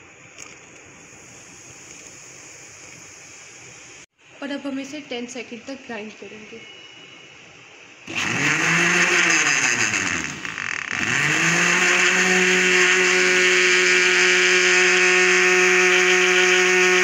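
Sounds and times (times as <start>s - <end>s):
electric blender grinding ice: 8.1s - 17.0s.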